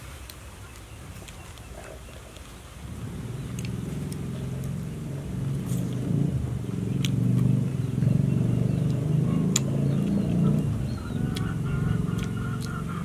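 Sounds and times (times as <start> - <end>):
motor engine humming: 2.8 - 13.0.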